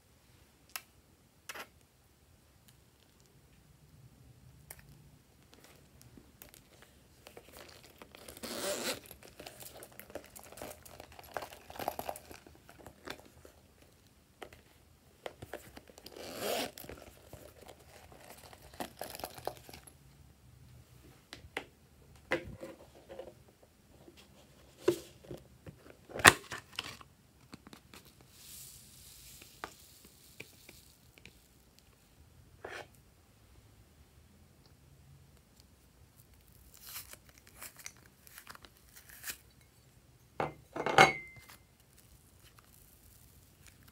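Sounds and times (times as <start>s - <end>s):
plastic packaging rustling: 5.5s - 19.9s.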